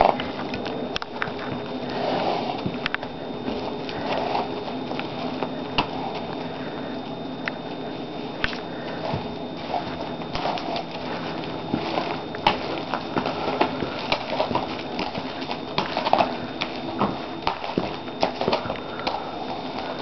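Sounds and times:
person's footsteps: 0:00.0 - 0:20.0
horse hoof steps: 0:08.4 - 0:20.0.

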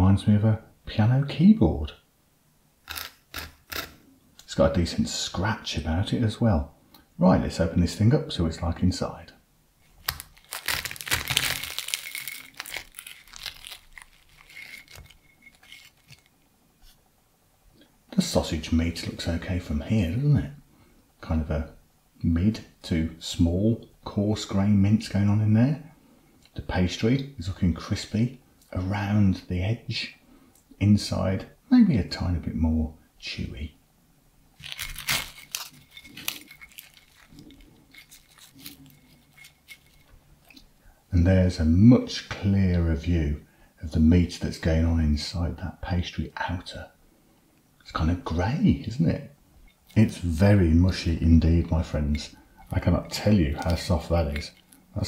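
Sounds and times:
pastry crackling: 0:09.8 - 0:17.0, 0:34.6 - 0:40.8, 0:49.8 - 0:55.0.

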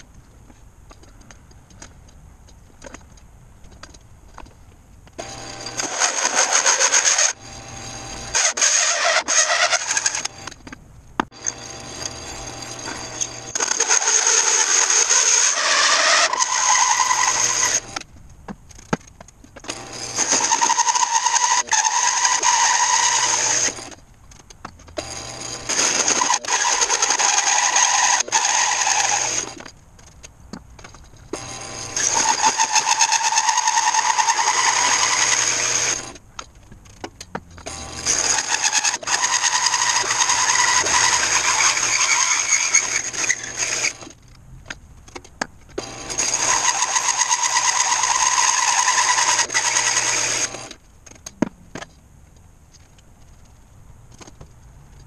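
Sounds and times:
drill press motor hum: 0:05.2 - 0:10.6, 0:11.2 - 0:18.0, 0:19.6 - 0:24.0, 0:25.0 - 0:29.7, 0:31.3 - 0:36.2, 0:37.6 - 0:44.2, 0:45.8 - 0:50.8
hole saw cutting wood: 0:05.2 - 0:18.1, 0:19.6 - 0:24.0, 0:24.9 - 0:29.7, 0:30.8 - 0:36.2, 0:37.6 - 0:44.2, 0:45.8 - 0:50.8.

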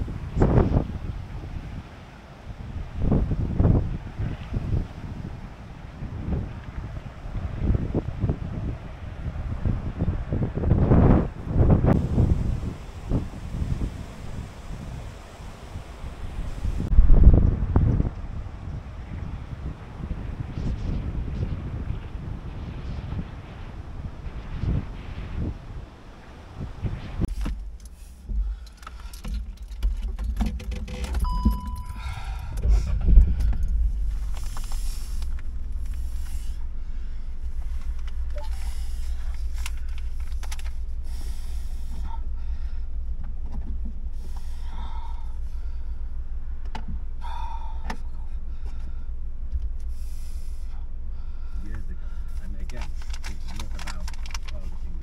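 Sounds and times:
wind buffeting microphone: 0:00.0 - 0:55.0
light rustles and clicks: 0:27.3 - 0:31.8, 0:32.5 - 0:36.7, 0:37.4 - 0:41.0, 0:51.7 - 0:55.0.

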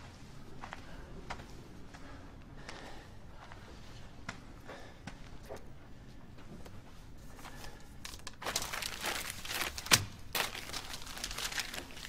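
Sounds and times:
paper banknotes rustling: 0:07.8 - 0:12.0.

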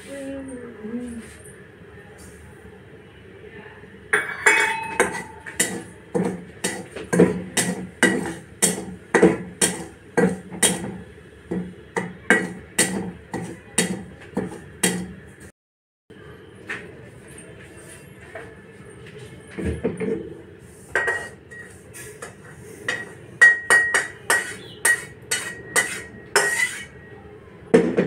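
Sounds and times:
metal spatula scraping metal pan: 0:04.2 - 0:06.9, 0:07.6 - 0:08.8, 0:20.9 - 0:27.0.

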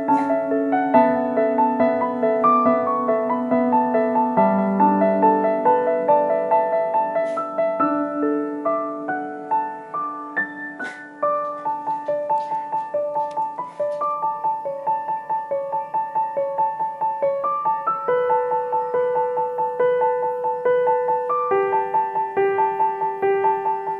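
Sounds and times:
soft piano music: 0:00.0 - 0:23.9.

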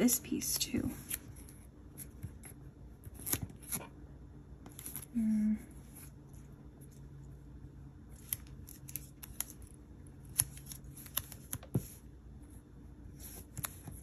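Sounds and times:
paper stickers crinkling: 0:08.1 - 0:12.0.

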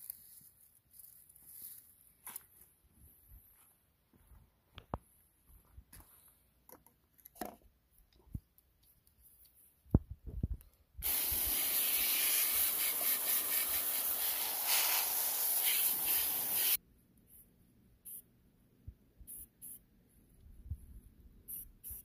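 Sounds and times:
hose nozzle spray hissing: 0:11.0 - 0:16.8.

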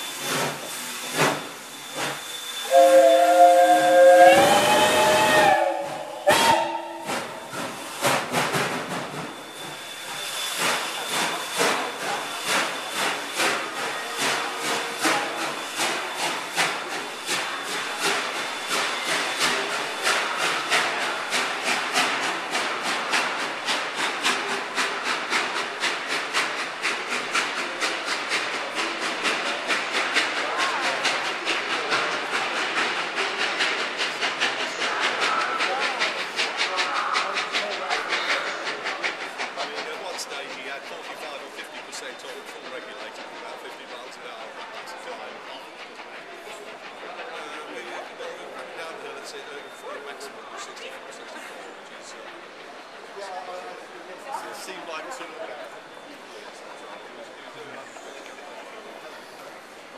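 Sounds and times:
steam locomotive whistle: 0:00.0 - 0:07.8
locomotive exhaust chuffs: 0:00.0 - 0:49.1
hissing steam: 0:00.0 - 0:59.9.

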